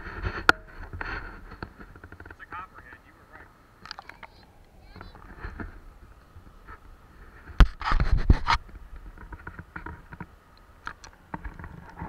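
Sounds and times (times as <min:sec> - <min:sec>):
camera handling knocks and scrapes: 0:07.5 - 0:10.3.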